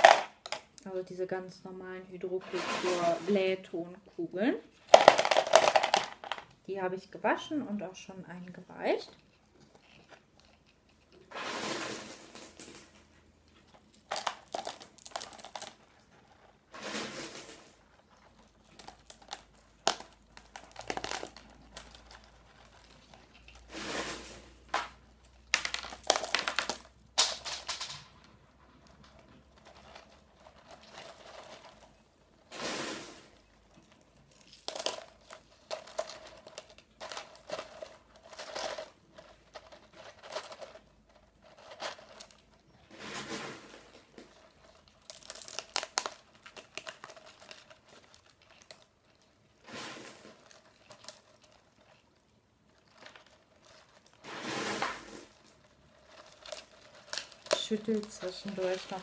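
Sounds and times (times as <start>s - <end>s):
plastic crinkling: 0.0s - 0.9s, 4.7s - 6.6s, 8.5s - 59.0s
clay pebbles rattling in plastic cup: 0.0s - 59.0s.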